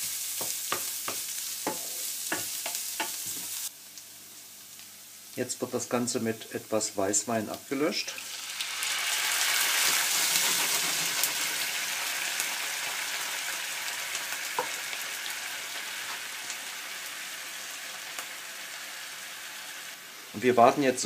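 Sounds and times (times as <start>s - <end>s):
wine sizzling in a frying pan: 0.0s - 21.0s.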